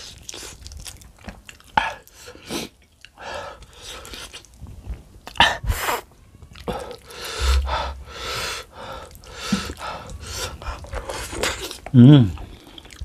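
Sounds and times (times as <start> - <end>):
wet chewing and sucking: 0.0 - 13.0
sharp breaths through mouth: 6.7 - 11.5.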